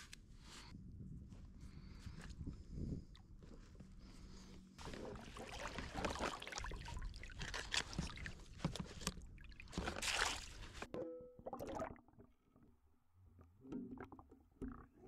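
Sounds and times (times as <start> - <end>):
small water sounds: 4.8 - 15.0.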